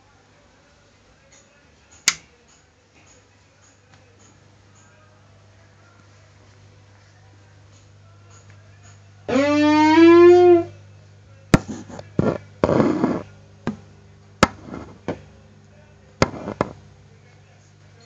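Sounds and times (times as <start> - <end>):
steady low hum: 0.1 - 18.0
held musical note: 9.3 - 10.7.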